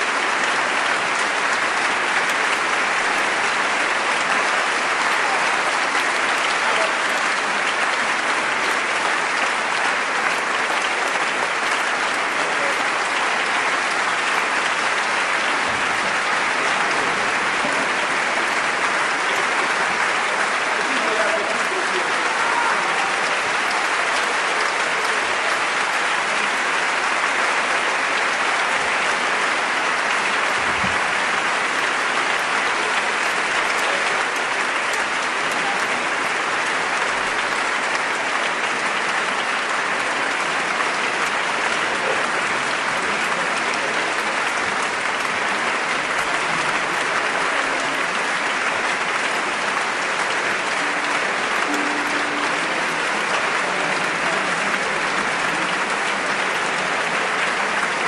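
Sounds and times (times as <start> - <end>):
audience applauding: 0.0 - 58.0.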